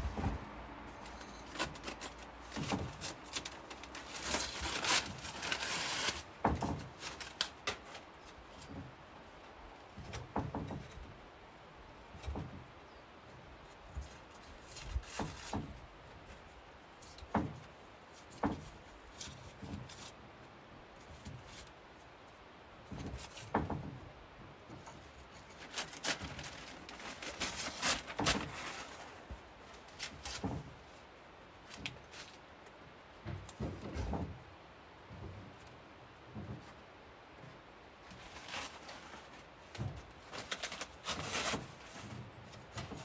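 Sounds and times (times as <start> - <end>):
paper tearing and crinkling: 1.2 - 8.4, 25.3 - 30.4, 38.1 - 39.4, 40.2 - 42.1
knocks of wooden frame: 6.4 - 7.8, 9.9 - 11.1, 17.3 - 17.7, 18.3 - 18.8, 22.9 - 24.1, 33.2 - 34.5.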